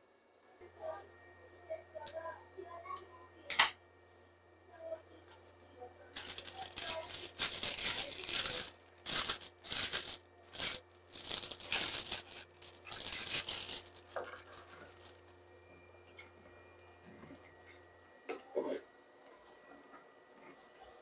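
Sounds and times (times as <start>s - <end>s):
plastic bag crinkling: 6.2s - 15.4s.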